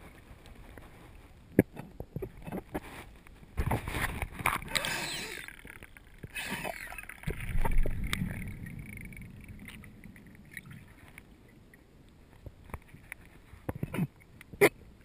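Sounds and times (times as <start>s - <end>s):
muffled underwater rumble: 6.2s - 15.0s.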